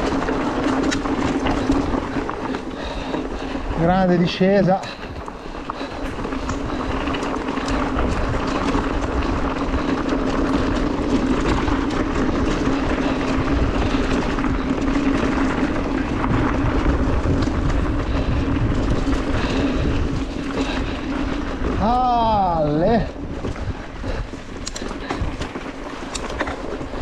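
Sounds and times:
knobby tyres droning rumble: 0:00.0 - 0:27.0.

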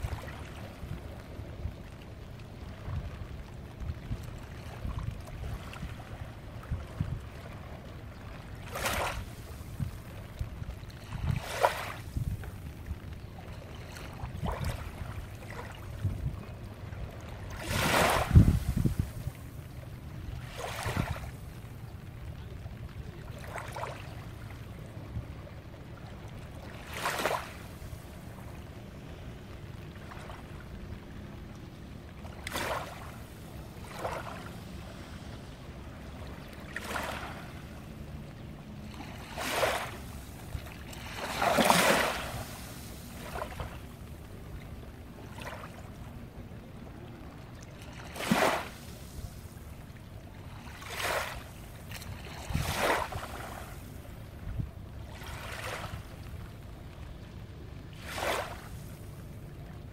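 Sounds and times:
low rumble of sea: 0:00.0 - 0:59.9
small waves lapping on shore: 0:00.0 - 0:59.9.

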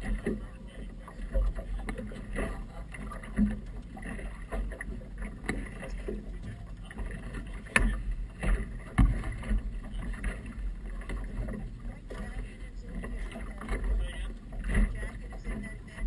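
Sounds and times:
wind and water against hull: 0:00.0 - 0:16.0
sharp knocks on hull: 0:07.6 - 0:10.3.

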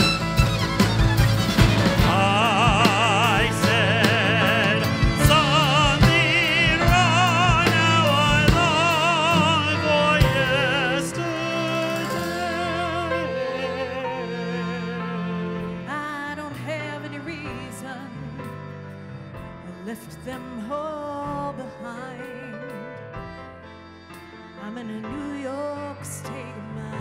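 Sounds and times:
drum hits: 0:00.0 - 0:10.9
violins: 0:00.0 - 0:27.0
man singing with vibrato: 0:02.0 - 0:15.0.

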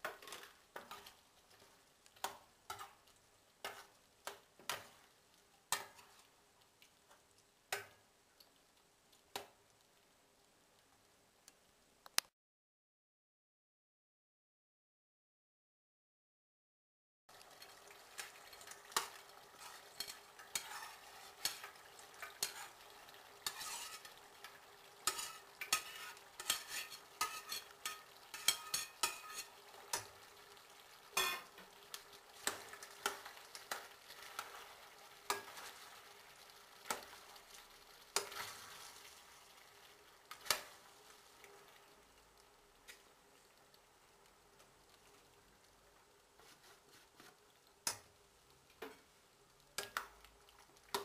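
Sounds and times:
frying sizzle: 0:00.0 - 0:12.3, 0:17.3 - 0:51.0
metal spoon clinking in pot: 0:20.0 - 0:20.8, 0:25.1 - 0:29.5.

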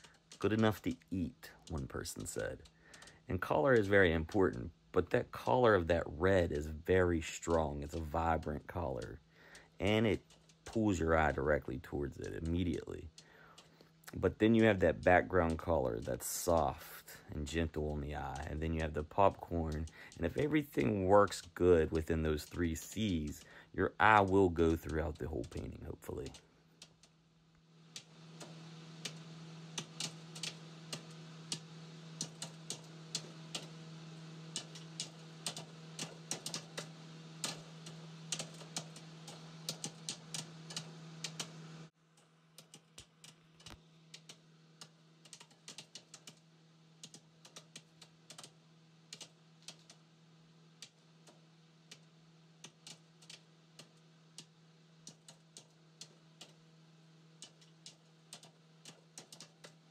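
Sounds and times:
steady low hum: 0:00.0 - 0:59.9
light clicks and taps: 0:07.4 - 0:23.5.

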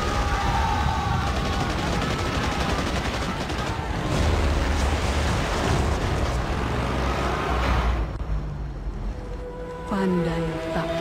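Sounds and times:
rapid gunfire: 0:00.0 - 0:06.4.

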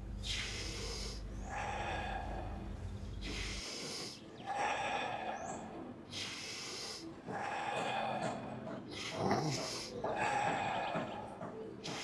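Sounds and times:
person breathing forcefully: 0:00.0 - 0:12.0.

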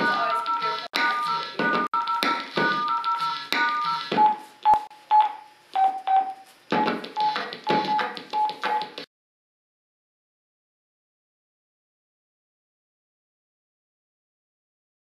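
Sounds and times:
cell phone beeps: 0:00.0 - 0:09.0.

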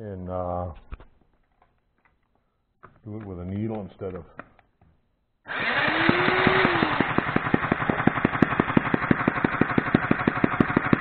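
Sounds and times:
electric drill motor whining: 0:05.5 - 0:11.0
model engine popping: 0:05.5 - 0:11.0.

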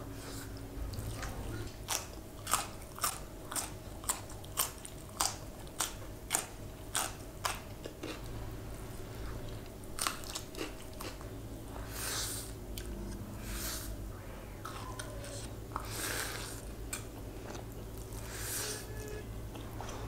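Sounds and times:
crunchy vegetable chewing: 0:00.3 - 0:08.4, 0:09.3 - 0:11.3.

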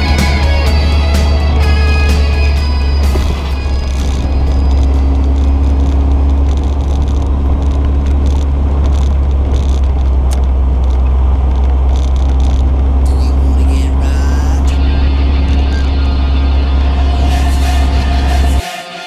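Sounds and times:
road rumble: 0:00.0 - 0:18.7
car engine running: 0:00.0 - 0:18.9
wind noise on microphone: 0:03.0 - 0:13.0.

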